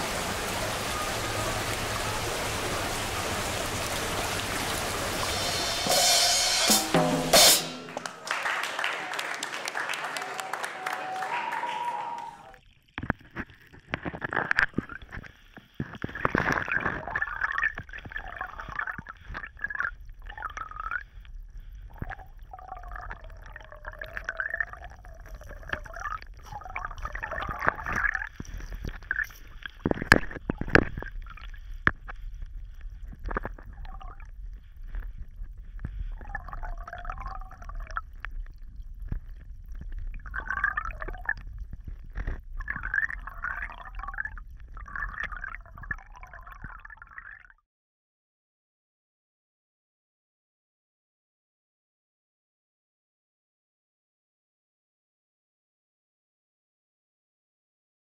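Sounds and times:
water gurgling and dripping: 0:00.0 - 0:06.7, 0:12.6 - 0:47.6.

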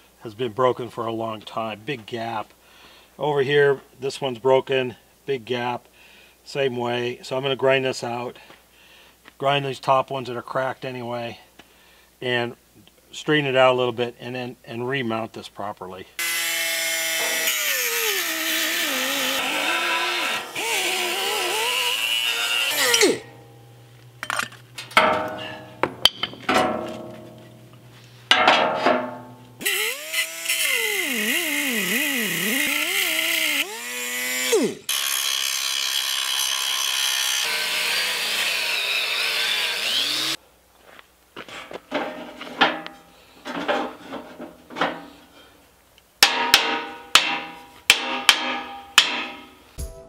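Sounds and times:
angle grinder grinding steel: 0:16.2 - 0:25.8, 0:29.6 - 0:40.4
metal knocks: 0:24.2 - 0:29.4.

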